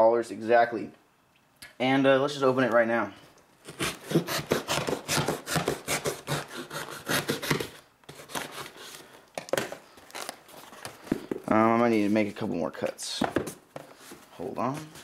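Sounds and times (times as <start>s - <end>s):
knife sawing through tape and cardboard: 3.6s - 9.0s.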